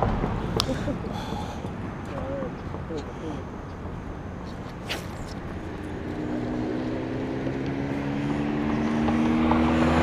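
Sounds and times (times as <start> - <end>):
approaching engine drone: 4.6 - 10.0.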